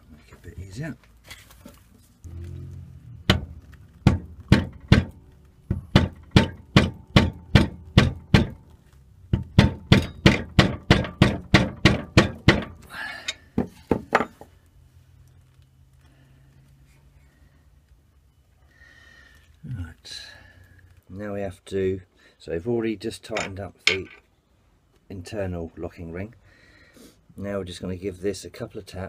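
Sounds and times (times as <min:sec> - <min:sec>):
mallet tapping metal rod: 0:05.9 - 0:08.6.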